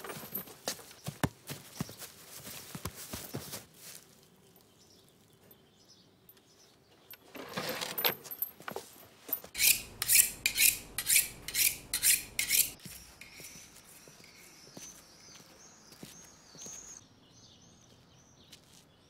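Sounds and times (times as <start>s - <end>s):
metal scraping: 9.5s - 13.8s.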